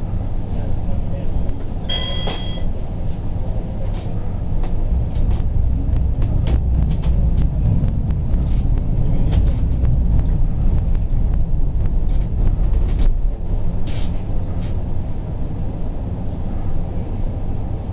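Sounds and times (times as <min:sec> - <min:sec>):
tram rumbling on rails: 0:00.0 - 0:17.9
wheels clicking on track: 0:03.8 - 0:14.9.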